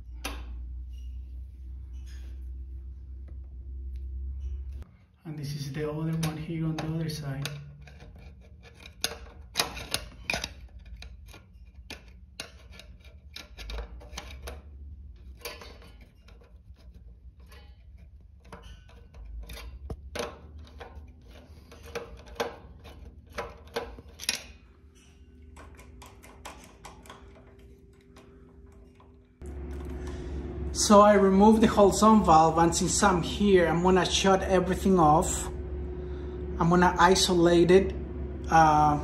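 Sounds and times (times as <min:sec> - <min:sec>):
faint steady hum: 0:00.0 - 0:39.0
screwdriver clicking on metal screw: 0:06.1 - 0:14.6, 0:15.2 - 0:29.1.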